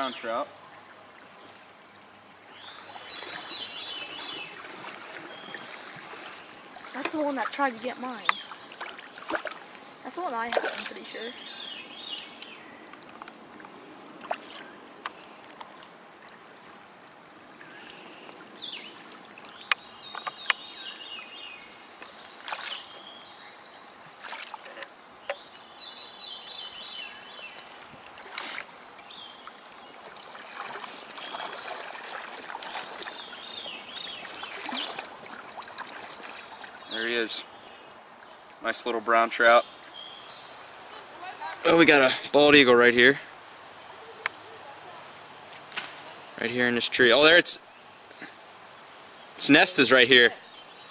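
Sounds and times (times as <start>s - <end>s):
creek water running: 0.0s - 50.9s
water splashes: 1.0s - 39.6s.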